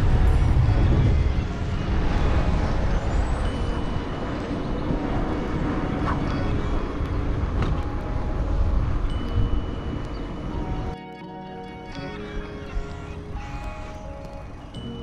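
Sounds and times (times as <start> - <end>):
wind rushing over microphone: 0.0 - 11.0.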